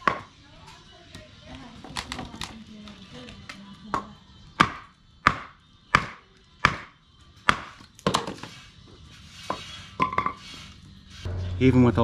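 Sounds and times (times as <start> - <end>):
wooden baton pounding on knife: 3.9 - 8.4.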